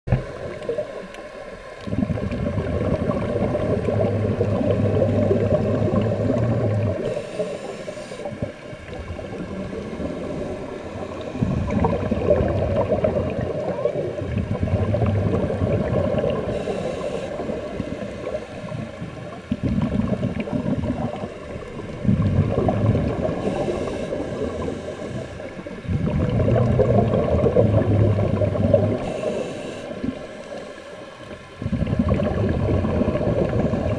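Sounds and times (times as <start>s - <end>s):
exhaled bubbles underwater: 0.1s - 33.9s
regulator inhalation hiss: 7.0s - 8.4s, 10.0s - 11.8s, 16.5s - 18.8s, 23.3s - 25.7s, 29.0s - 31.0s.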